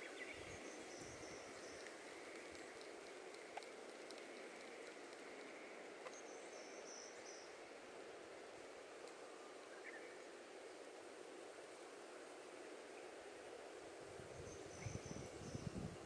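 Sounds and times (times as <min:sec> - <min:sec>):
soft steady hiss: 0:00.0 - 0:16.0
tiny ticks: 0:01.6 - 0:06.2, 0:09.0 - 0:09.2.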